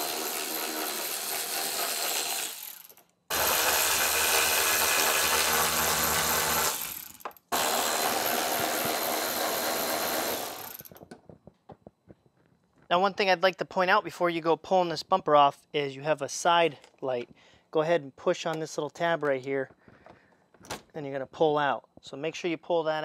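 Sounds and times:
power ratchet spinning: 0:00.0 - 0:11.0.

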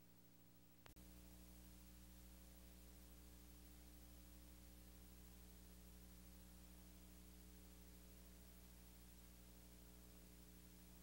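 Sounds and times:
faint steady hum: 0:00.0 - 0:11.0
low hiss: 0:00.0 - 0:11.0.

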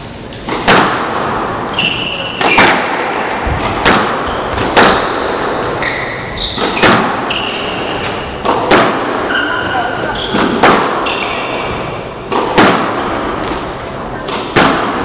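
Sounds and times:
squash ball hits echoing: 0:00.3 - 0:15.0
shoes squeaking on wooden floor: 0:01.7 - 0:02.6, 0:04.2 - 0:04.8, 0:05.6 - 0:08.4, 0:09.3 - 0:12.3.

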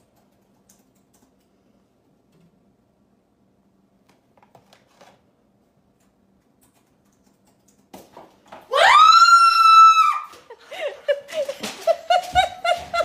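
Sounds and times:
laptop keyboard typing: 0:00.0 - 0:01.5, 0:05.9 - 0:08.0
woman screaming: 0:08.7 - 0:10.5.

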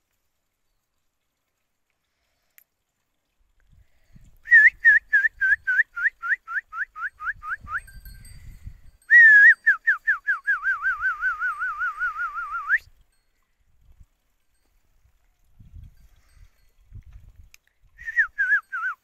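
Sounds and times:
phone ringtone whistled tune: 0:09.1 - 0:12.9.

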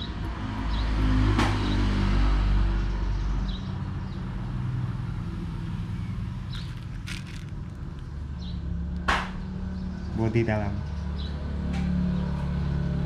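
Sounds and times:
vehicle engine humming: 0:03.8 - 0:10.1.

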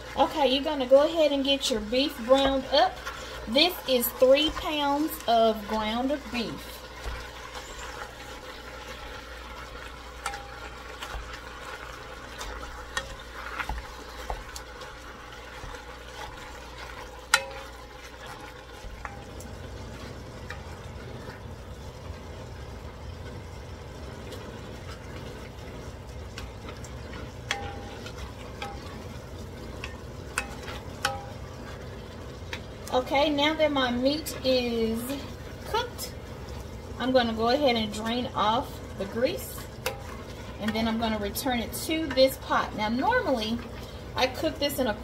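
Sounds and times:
meat sizzling in a pot: 0:00.0 - 0:45.0
utensil clicking against pot: 0:29.8 - 0:31.4.

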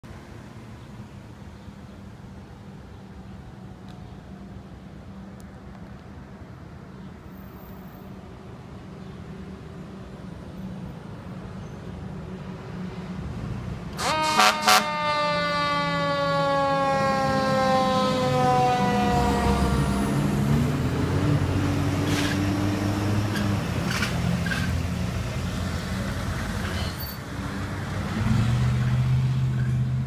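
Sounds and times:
truck engines rumbling: 0:00.0 - 0:30.0
loud horn blasts: 0:14.0 - 0:20.2
siren winding down: 0:14.0 - 0:21.0.

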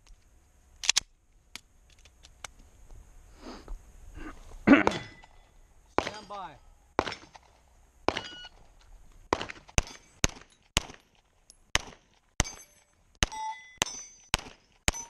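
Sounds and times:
steel plates ringing: 0:04.9 - 0:07.3, 0:12.4 - 0:15.0
pistol shots: 0:06.0 - 0:06.4, 0:07.0 - 0:07.5, 0:08.1 - 0:08.5, 0:09.3 - 0:11.1, 0:11.7 - 0:15.0.

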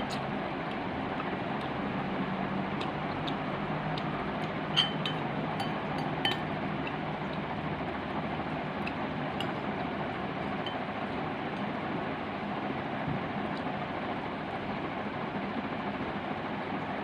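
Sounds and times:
background hum: 0:00.0 - 0:17.0
utensils clinking on glass bowl: 0:04.8 - 0:06.4.

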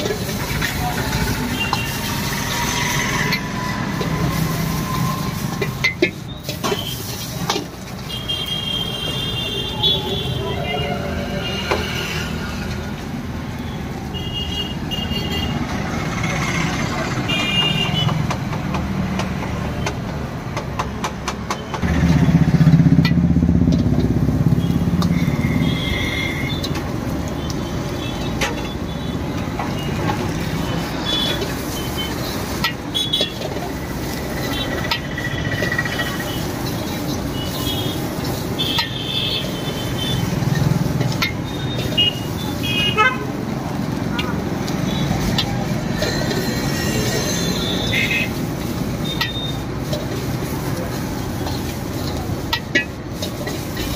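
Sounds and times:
vehicles passing: 0:00.0 - 0:53.9.

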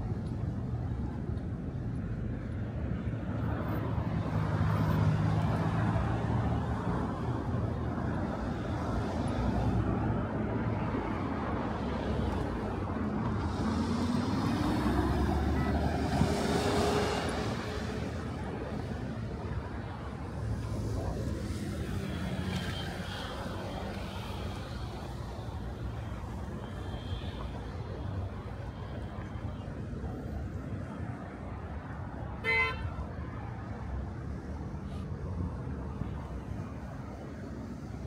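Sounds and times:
road traffic rumble: 0:00.0 - 0:38.0.

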